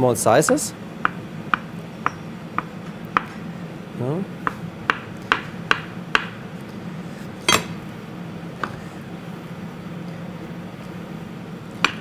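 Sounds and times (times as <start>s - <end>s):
low steady hum: 6.4s - 11.7s.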